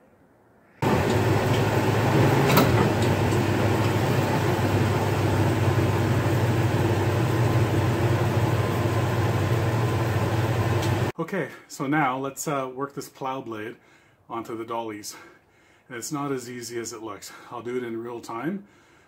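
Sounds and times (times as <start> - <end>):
truck engine idling: 0.8 - 11.1.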